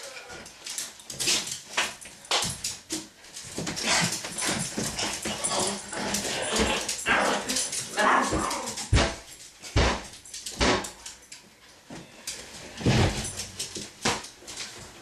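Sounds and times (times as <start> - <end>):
heavy thumps: 8.3 - 10.9.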